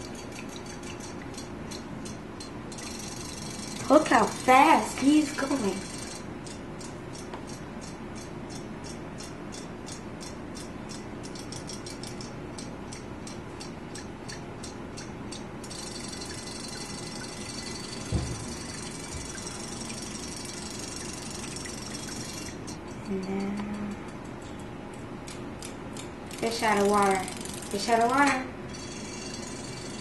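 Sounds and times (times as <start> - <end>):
toy tail mechanism ticking: 0.6 - 23.9, 25.3 - 30.0
dull thump: 18.1 - 18.5.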